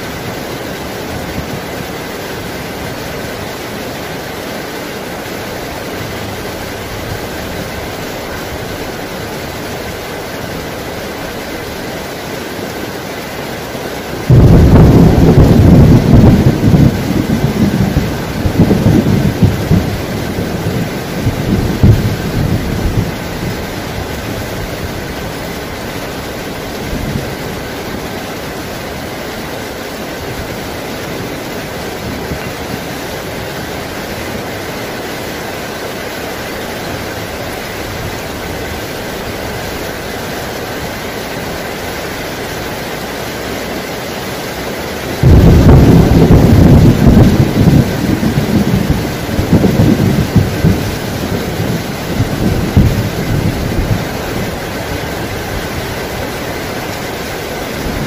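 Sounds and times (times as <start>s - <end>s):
heavy rain falling: 0.0s - 58.0s
thunder rumbling: 14.0s - 28.8s, 45.2s - 58.0s.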